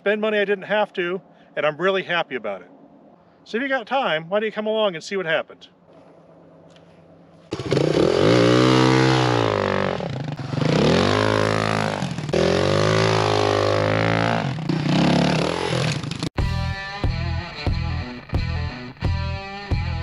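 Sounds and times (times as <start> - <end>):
dirt bike engine revving: 7.5 - 16.3.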